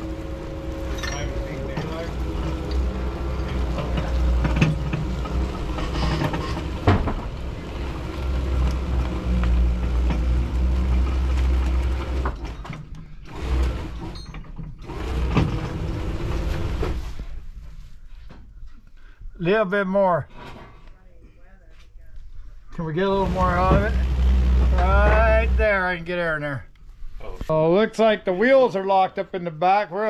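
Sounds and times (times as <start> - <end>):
air compressor running: 0.0 - 12.4, 13.0 - 14.2, 14.8 - 17.1, 23.0 - 25.7.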